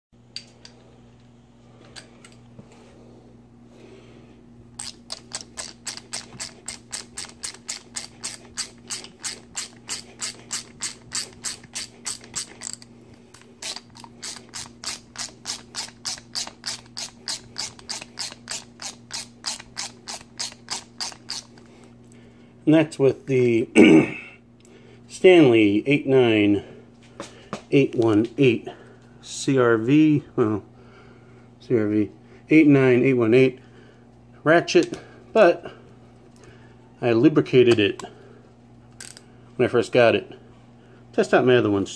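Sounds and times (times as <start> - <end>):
hand ratchet clicking: 4.8 - 21.7, 39.0 - 39.2.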